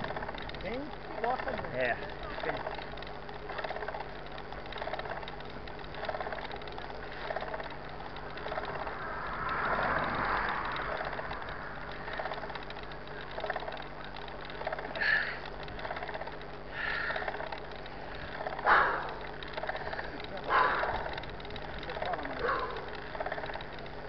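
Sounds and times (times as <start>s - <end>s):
bike drivetrain rattle: 0.0s - 24.0s
bike tyre and wind noise: 0.0s - 24.0s
car passing: 8.2s - 13.0s.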